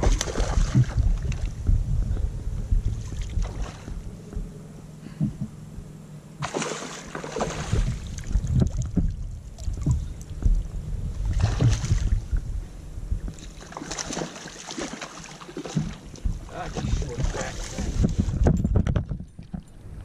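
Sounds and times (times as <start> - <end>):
water splashing: 0.0 - 1.6, 3.0 - 4.0, 6.4 - 10.2, 11.2 - 12.4, 13.3 - 18.4
low background rumble: 0.0 - 20.0.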